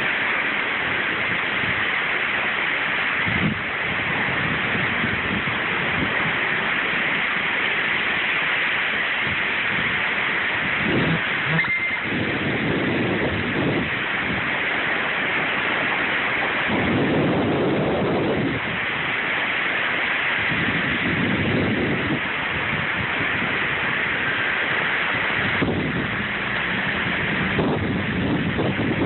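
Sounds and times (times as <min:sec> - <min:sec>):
heavy rain: 0:00.0 - 0:29.0
strong wind: 0:00.0 - 0:29.0
low thunder rumbling: 0:09.6 - 0:14.6, 0:16.4 - 0:18.8, 0:25.2 - 0:29.0.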